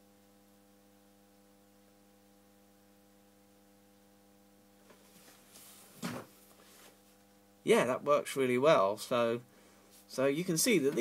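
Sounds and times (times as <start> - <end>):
electrical mains hum: 0.0 - 11.0
thump: 6.0 - 6.3.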